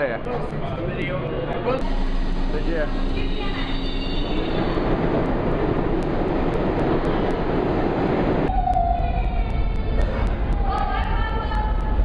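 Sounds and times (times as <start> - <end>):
platform background noise: 0.0 - 12.0
subway train rumbling past: 0.7 - 12.0
brief tone: 1.8 - 4.9.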